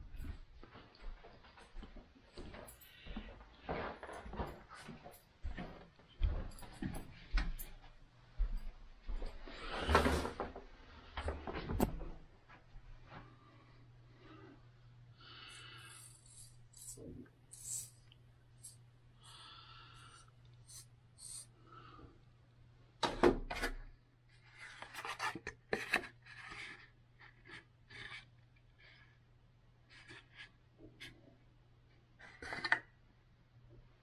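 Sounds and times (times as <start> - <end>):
rustling and scraping handling noise: 23.6 - 29.2, 29.8 - 31.4, 32.2 - 32.8.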